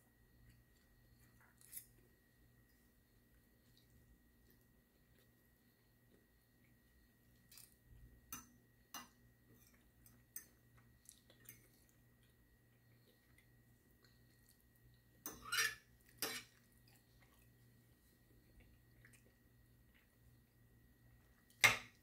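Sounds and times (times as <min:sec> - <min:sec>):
fork clinking and scraping on plate: 0:15.2 - 0:16.6.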